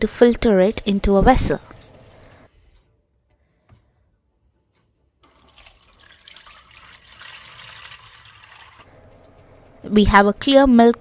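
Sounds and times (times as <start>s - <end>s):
liquid pouring through strainer: 5.2s - 8.9s.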